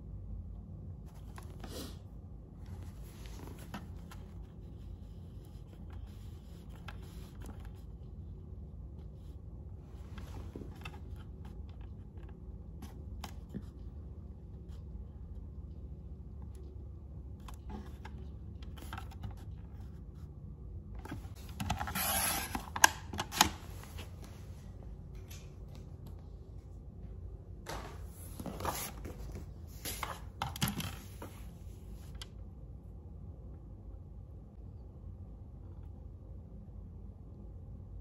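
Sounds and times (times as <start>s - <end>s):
paper sheets rustling: 27.7s - 31.5s.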